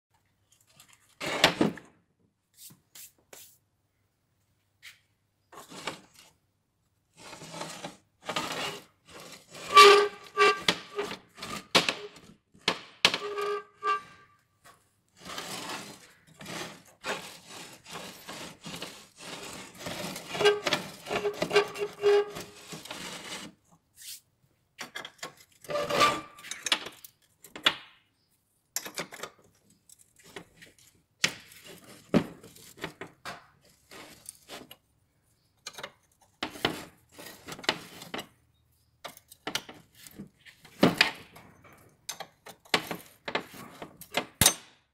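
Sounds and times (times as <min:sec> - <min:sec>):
short pitched squeaks: 0:13.2 - 0:14.4.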